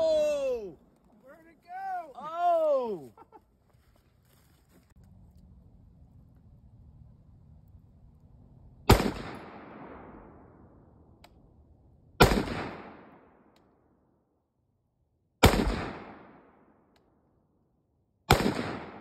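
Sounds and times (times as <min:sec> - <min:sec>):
gunshots: 0:08.9 - 0:10.3, 0:12.2 - 0:13.3, 0:15.4 - 0:16.6, 0:18.3 - 0:19.0.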